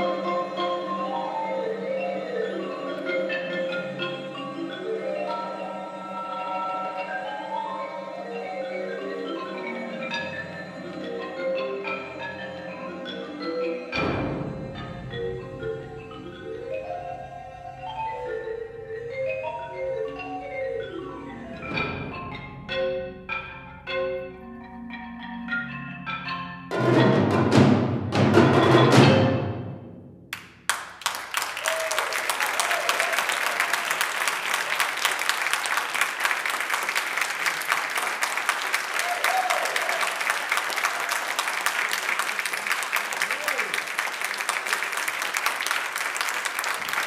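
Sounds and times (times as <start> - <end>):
solo marimba notes: 0.0 - 29.4
marimba and percussion ensemble: 0.0 - 47.0
audience applauding: 30.3 - 47.0.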